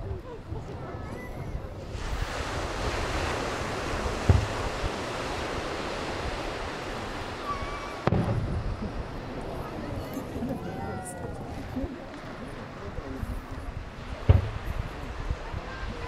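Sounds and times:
surf washing onto beach: 0.0s - 16.0s
dull firework boom: 2.9s - 5.0s, 7.9s - 9.4s, 14.1s - 15.4s.

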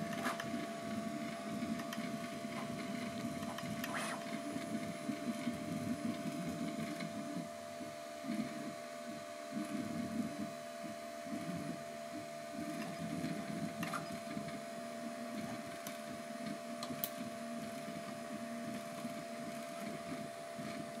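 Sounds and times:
printer motors buzzing and whirring: 0.0s - 21.0s
steady whine: 0.0s - 21.0s.

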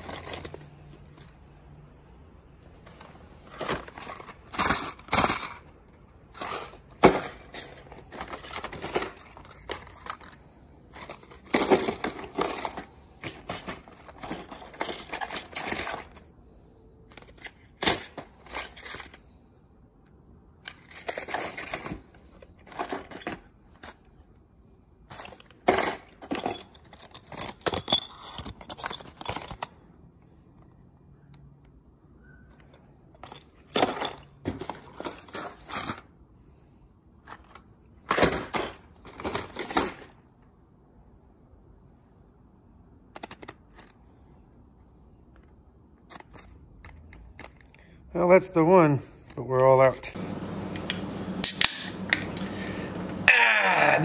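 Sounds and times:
plastic packs crinkling and clacking: 2.6s - 16.4s.

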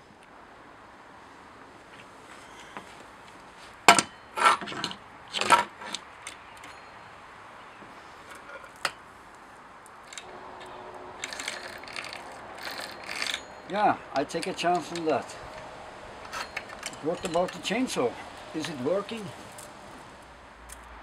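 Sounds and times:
saw chain metallic rattle: 10.0s - 20.9s.

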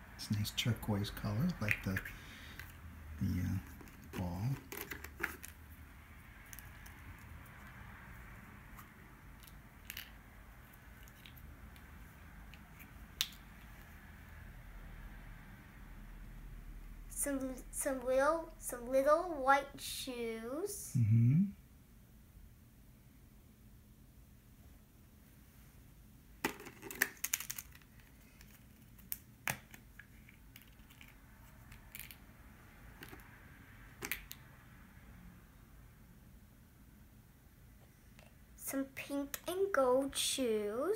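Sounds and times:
plastic toy pieces clicking: 26.6s - 29.2s.

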